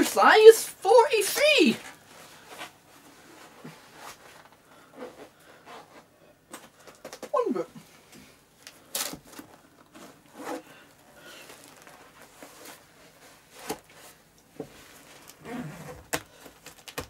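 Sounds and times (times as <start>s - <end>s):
leather rustling and rubbing: 11.4s - 16.1s.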